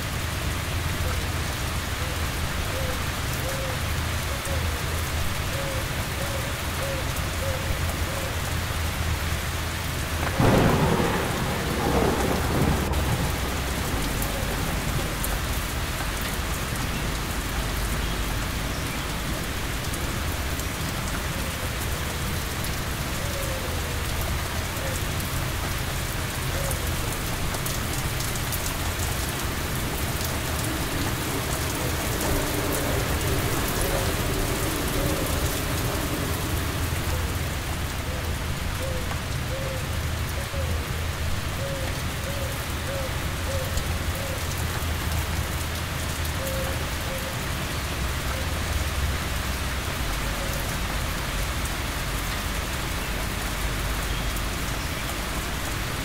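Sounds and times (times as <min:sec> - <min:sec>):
steady rainfall: 0:00.0 - 0:56.0
rumbling thunderclap: 0:10.2 - 0:16.9, 0:28.1 - 0:38.0.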